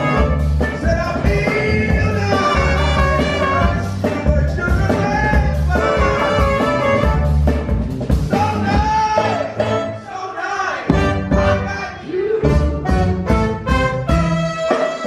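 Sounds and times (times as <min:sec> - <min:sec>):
saxophone and trumpet: 0:00.0 - 0:04.3, 0:05.5 - 0:07.6, 0:09.0 - 0:15.0
man singing into microphone: 0:00.0 - 0:06.4
drums: 0:00.0 - 0:15.0
live band music: 0:00.0 - 0:15.0.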